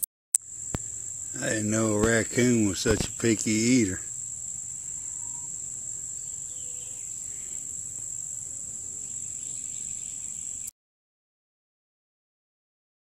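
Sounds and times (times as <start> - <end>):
insects trilling: 0.4 - 10.7.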